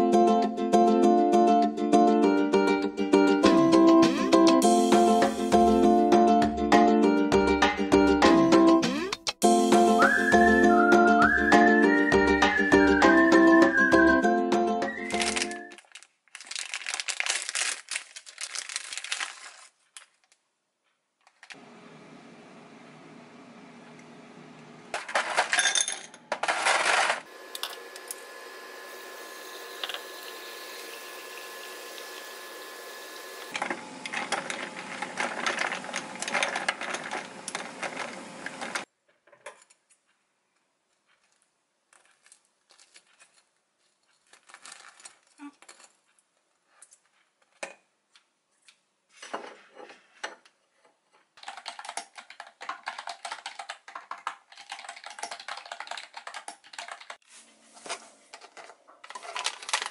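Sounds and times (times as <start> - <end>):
appliance hum: 21.6 - 38.9
ice cubes clinking into glass: 25.1 - 27.8
fast keyboard typing: 51.4 - 57.2.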